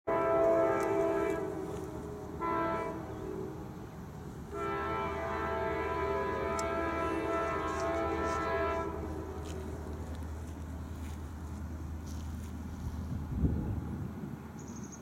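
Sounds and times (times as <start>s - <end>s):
diesel locomotive horn blasts: 0.1s - 10.2s.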